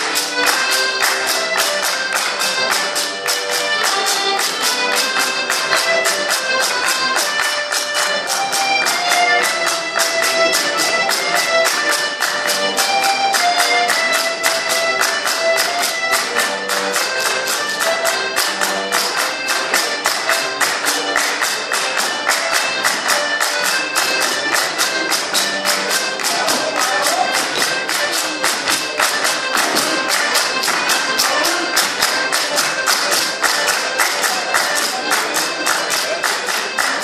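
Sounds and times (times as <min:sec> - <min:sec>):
fast folk dance music: 0:00.0 - 0:37.0
hand claps: 0:00.0 - 0:37.0.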